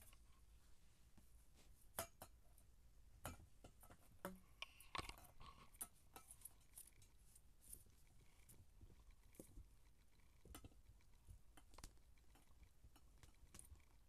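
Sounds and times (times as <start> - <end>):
kittens pawing and tapping: 3.2 - 14.0.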